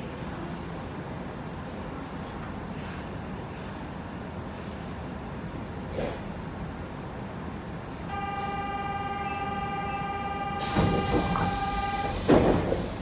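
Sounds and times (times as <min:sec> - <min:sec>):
sliding doors opening: 0:10.5 - 0:13.0.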